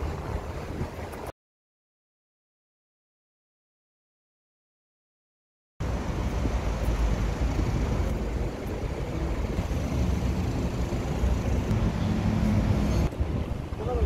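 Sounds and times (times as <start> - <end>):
road traffic rumble: 5.8 - 14.0.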